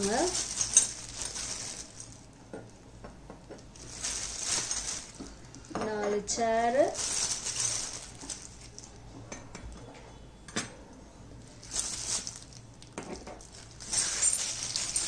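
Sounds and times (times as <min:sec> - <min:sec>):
plastic bag rustling: 0:00.0 - 0:02.4, 0:03.7 - 0:05.6, 0:06.6 - 0:09.0, 0:11.5 - 0:12.7, 0:13.4 - 0:15.0.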